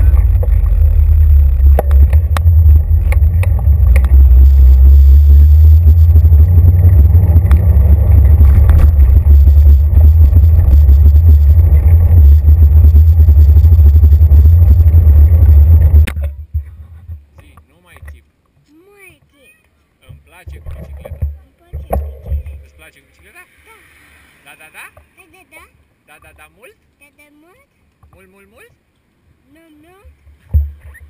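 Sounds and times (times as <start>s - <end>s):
bicycle tyres rumbling on pavement: 0.0s - 17.3s
knocks from bumps: 30.5s - 31.0s.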